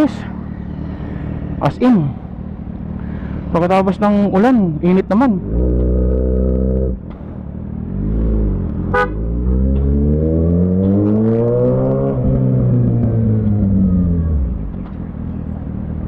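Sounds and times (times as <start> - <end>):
motorcycle engine revving: 4.2 - 15.0.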